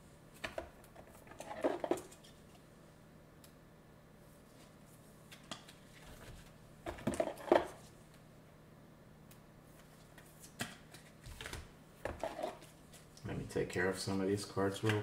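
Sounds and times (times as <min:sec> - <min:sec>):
cards handled on a table: 0:09.8 - 0:13.2.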